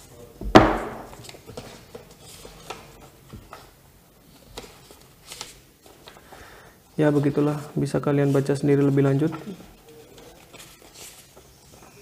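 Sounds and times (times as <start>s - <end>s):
cardboard box knocking on wooden table: 0.4s - 1.2s
paper leaflet rustling: 0.8s - 12.0s.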